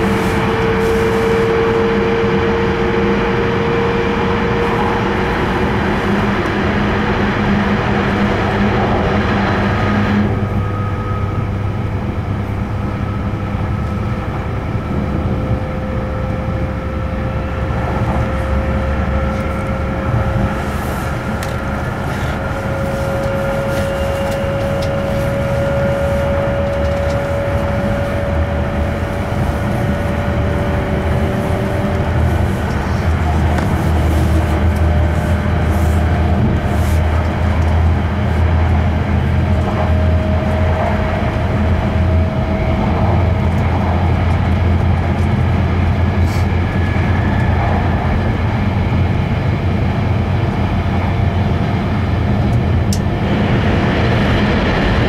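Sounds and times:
train cabin low rumble: 0.0s - 55.0s.

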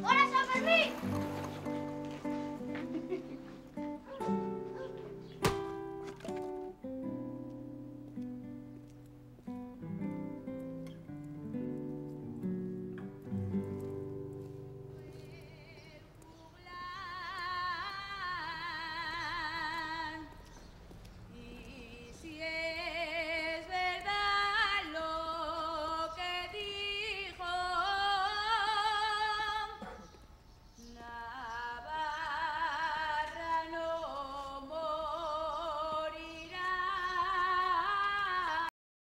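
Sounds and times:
woman singing with vibrato: 15.0s - 20.4s, 21.3s - 29.9s, 30.9s - 38.7s.

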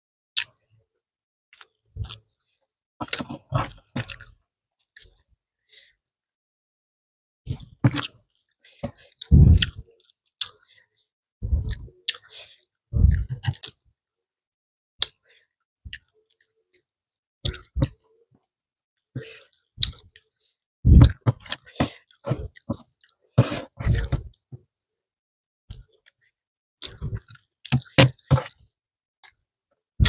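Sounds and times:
person chewing and smacking: 1.6s - 4.4s, 7.8s - 10.7s, 11.6s - 12.3s, 13.0s - 13.8s, 15.8s - 16.8s, 17.4s - 18.0s, 19.3s - 20.3s, 20.9s - 24.4s, 25.7s - 29.4s.

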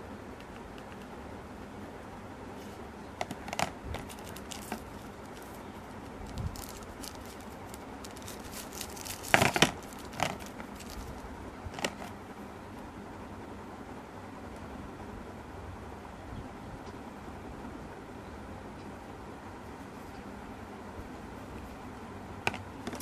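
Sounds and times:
steady background hiss: 0.0s - 23.0s
packaging crinkling and clicking: 3.2s - 12.2s, 22.5s - 23.0s.

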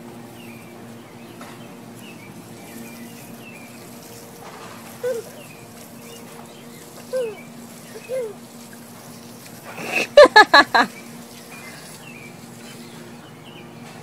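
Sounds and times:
birds chirping: 0.1s - 14.0s
water trickling from a hose: 1.8s - 13.4s
baby squealing with laughter: 7.1s - 7.4s, 8.0s - 8.4s, 9.8s - 10.9s.

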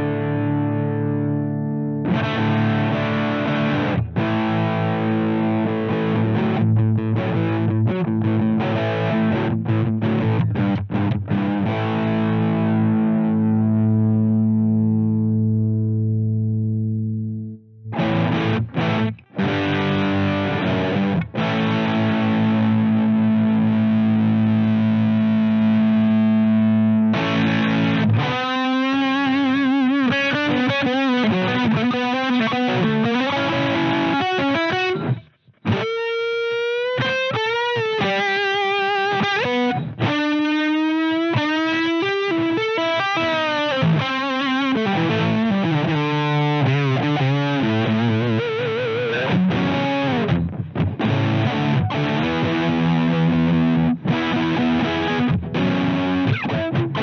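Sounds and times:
distorted electric guitar: 0.0s - 57.0s.

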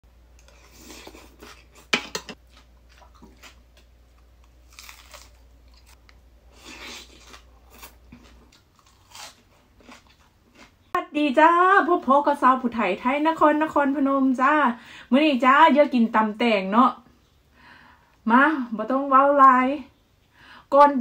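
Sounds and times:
crunching and chewing salad: 0.3s - 11.0s.

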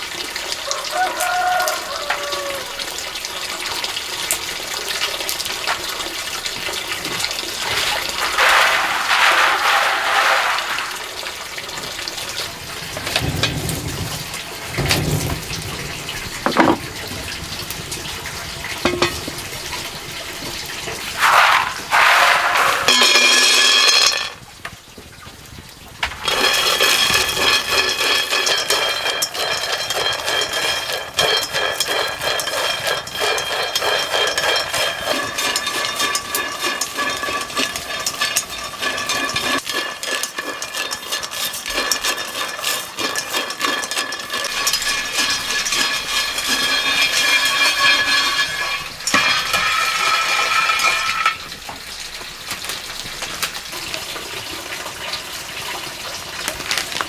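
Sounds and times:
nuts rattling against metal: 7.1s - 11.3s, 16.4s - 16.9s, 18.8s - 19.3s, 21.2s - 24.4s, 26.1s - 52.2s
peanuts poured into wok: 7.2s - 13.3s, 21.1s - 24.4s, 26.1s - 57.0s
wok ringing: 18.8s - 19.3s, 21.2s - 24.4s, 26.2s - 51.6s.

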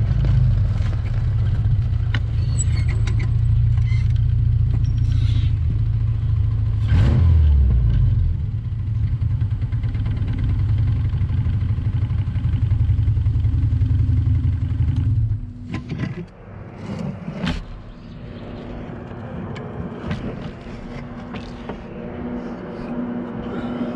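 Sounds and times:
buggy engine rumbling: 0.0s - 23.9s.

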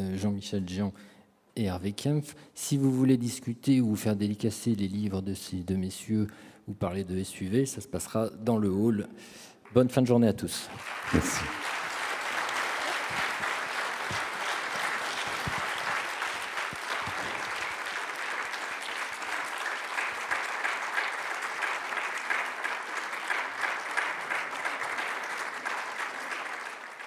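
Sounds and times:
audience applauding: 10.7s - 27.0s.

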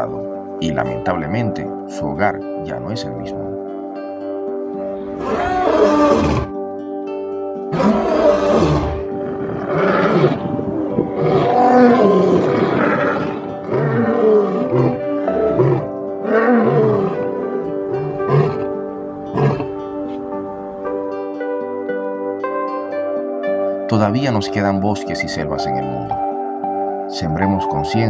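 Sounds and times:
background music with sustained notes: 0.0s - 28.0s
lions roaring: 5.0s - 6.5s, 7.7s - 19.8s.

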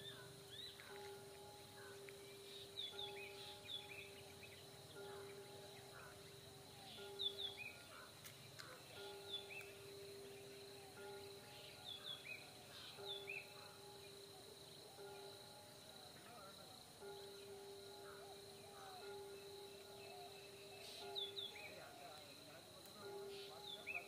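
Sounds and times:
birds chirping and whistling: 0.0s - 16.3s, 17.0s - 24.0s
steady low tone: 0.0s - 24.0s.

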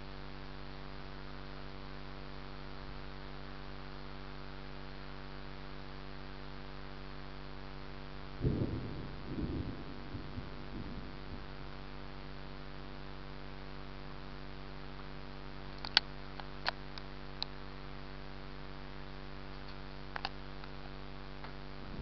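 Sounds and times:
electrical hum: 0.0s - 22.0s
thunder rumble: 8.3s - 12.8s
sharp clicks: 15.8s - 17.5s.

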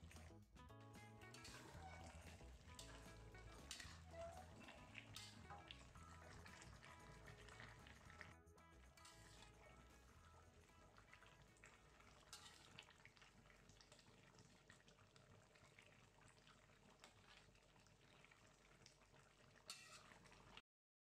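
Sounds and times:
gravy bubbling in a wok: 0.0s - 20.6s
metal ladle stirring: 1.2s - 12.9s, 19.7s - 20.3s.

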